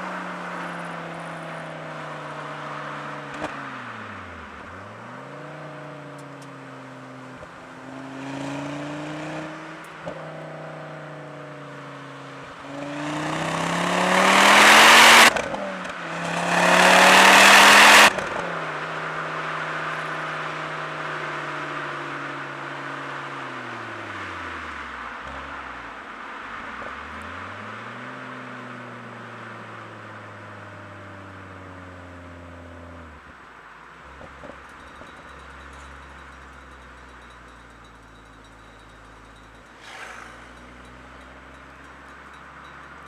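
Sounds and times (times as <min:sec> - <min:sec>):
car engine revving: 0:00.0 - 0:33.3.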